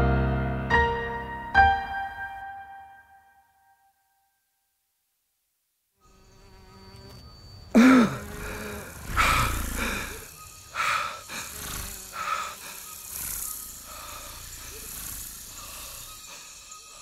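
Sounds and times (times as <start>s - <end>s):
loud buzzing swells: 6.0s - 17.0s.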